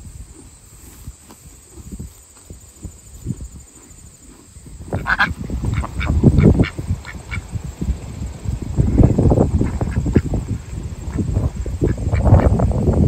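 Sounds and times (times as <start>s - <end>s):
ducks quacking: 4.9s - 7.4s.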